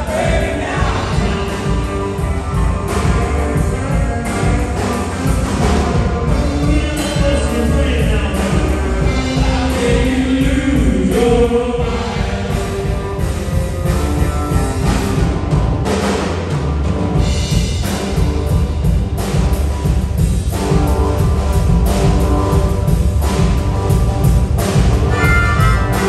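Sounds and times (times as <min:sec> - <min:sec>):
bending electric guitar notes: 0:00.0 - 0:09.6, 0:11.9 - 0:17.4, 0:20.6 - 0:26.0
live rock band playing: 0:00.0 - 0:26.0.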